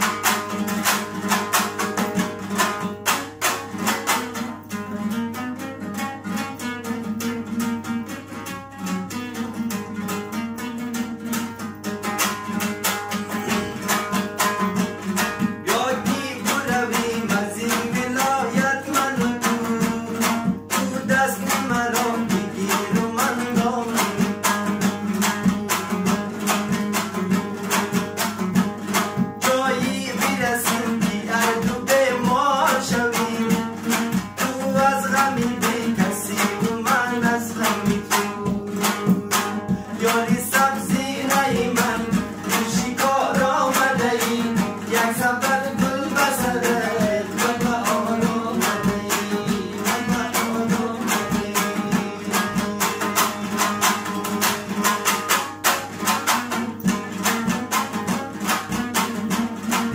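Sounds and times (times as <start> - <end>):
lute strummed fast: 0.0 - 59.9
man singing: 12.3 - 55.3.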